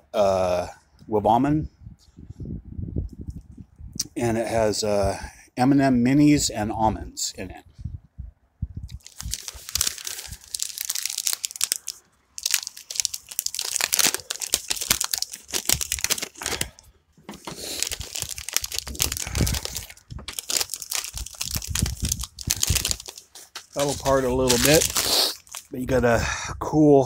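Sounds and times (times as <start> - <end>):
plastic wrapper tearing and crinkling: 8.9 - 25.8.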